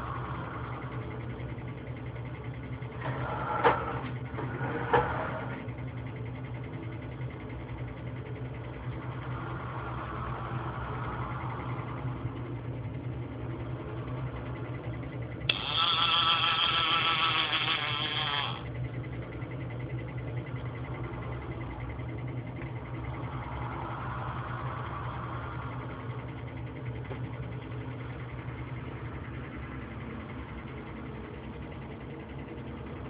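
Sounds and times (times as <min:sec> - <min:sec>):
steady low hum: 0:00.0 - 0:33.0
robot arm motors whining: 0:13.6 - 0:18.7, 0:20.4 - 0:32.0.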